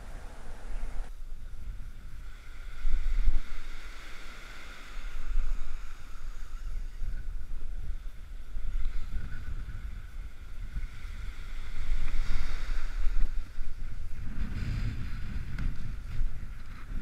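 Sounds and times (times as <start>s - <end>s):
wind buffeting microphone: 0.0s - 17.0s
small waves washing on sand: 2.0s - 16.1s.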